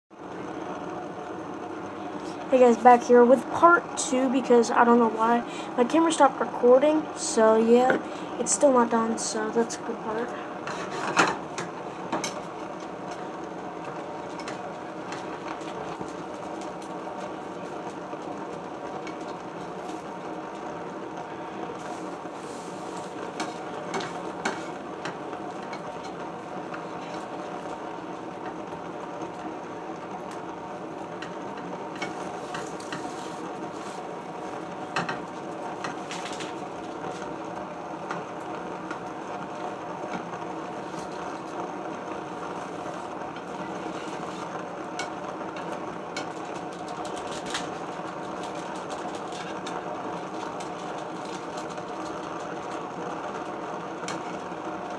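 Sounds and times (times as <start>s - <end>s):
steady hum with faint tones: 0.1s - 54.9s
spatula scraping frying pan: 10.6s - 12.4s, 31.2s - 34.1s, 42.5s - 48.0s.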